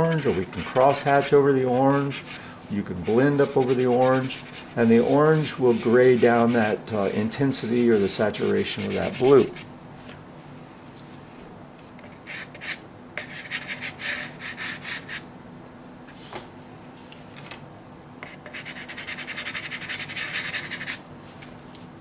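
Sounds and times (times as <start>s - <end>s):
pastel scratching on paper: 0.0s - 6.7s, 8.4s - 9.7s, 12.0s - 15.2s, 18.2s - 21.0s.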